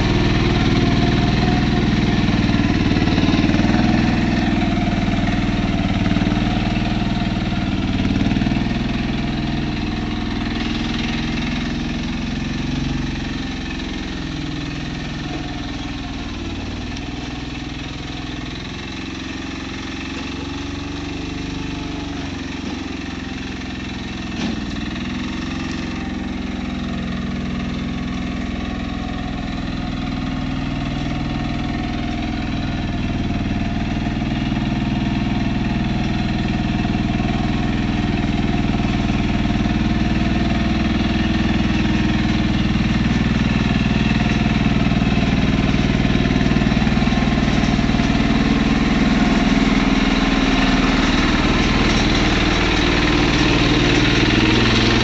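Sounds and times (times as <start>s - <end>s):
mini dumper engine running: 0.0s - 55.0s.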